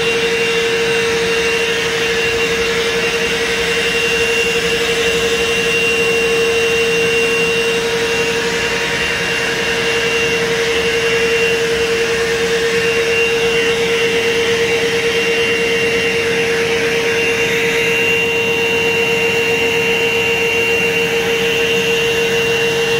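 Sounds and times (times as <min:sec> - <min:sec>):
pet grooming dryer blowing: 0:00.0 - 0:22.9.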